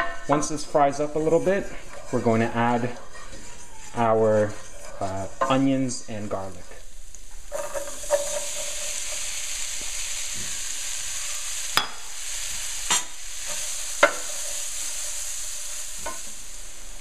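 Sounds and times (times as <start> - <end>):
onions sizzling in hot oil: 0.0 - 17.0.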